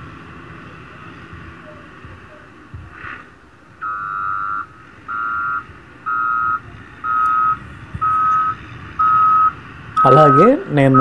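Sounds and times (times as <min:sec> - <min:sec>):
grader engine running: 0:00.0 - 0:11.0
reversing alarm beeping: 0:03.8 - 0:11.0.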